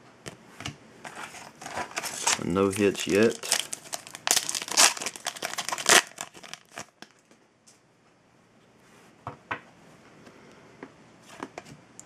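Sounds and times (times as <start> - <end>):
foil pack tearing and crinkling: 1.1 - 7.3.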